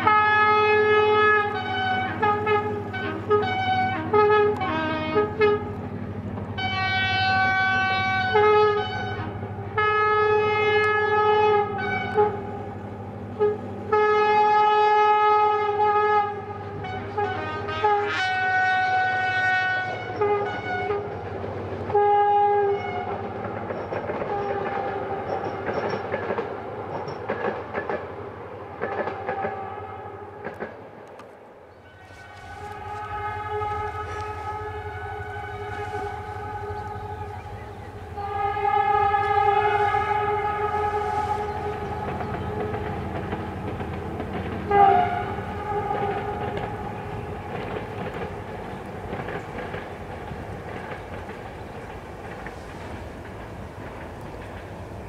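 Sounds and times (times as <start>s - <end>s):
locomotive air horn blasts: 0.0s - 5.8s, 6.5s - 23.4s, 24.2s - 25.6s, 28.9s - 30.5s, 31.8s - 49.8s
train rumble and wheel clatter: 0.0s - 55.0s.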